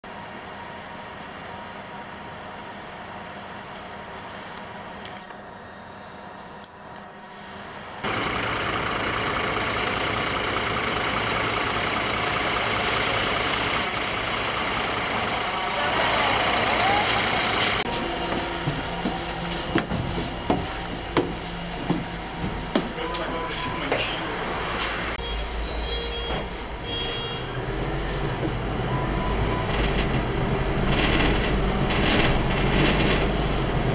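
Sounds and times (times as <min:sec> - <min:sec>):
bus engine and road noise: 0:00.1 - 0:33.9
footsteps climbing stairs: 0:17.1 - 0:25.0.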